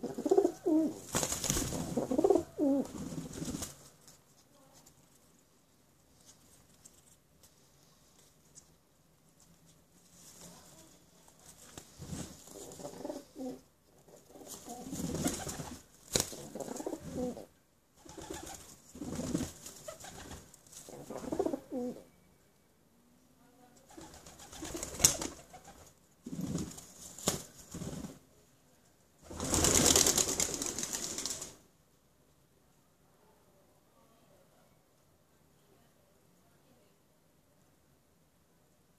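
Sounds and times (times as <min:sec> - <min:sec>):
pigeons cooing: 0:00.0 - 0:01.0, 0:01.8 - 0:03.4, 0:12.6 - 0:15.5, 0:16.4 - 0:17.5, 0:20.9 - 0:22.0
pigeon wings clattering: 0:01.0 - 0:02.1, 0:14.8 - 0:16.5, 0:24.0 - 0:25.8, 0:29.3 - 0:31.6.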